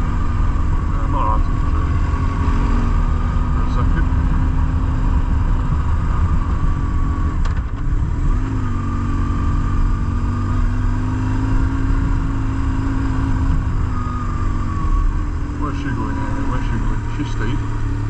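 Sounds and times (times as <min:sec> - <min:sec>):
wind rumble on microphone: 0:00.0 - 0:12.6
motorcycle engine running: 0:00.0 - 0:18.0.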